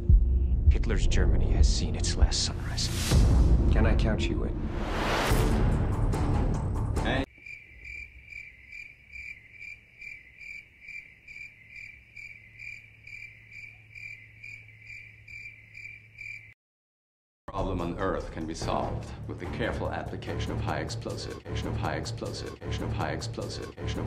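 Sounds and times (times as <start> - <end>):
trailer soundtrack: 0.0 - 7.3, 17.5 - 24.0
cricket chirping: 7.3 - 16.6.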